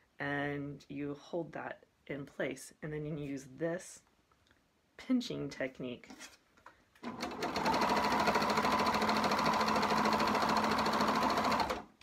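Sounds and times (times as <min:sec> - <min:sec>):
overlock sewing machine running: 0:07.0 - 0:11.9.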